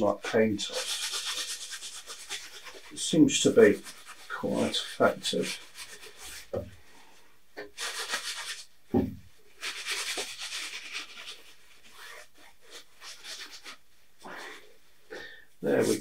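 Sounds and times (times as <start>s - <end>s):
towel scrubbing canvas: 0.6s - 6.5s, 7.8s - 8.7s, 9.5s - 14.6s.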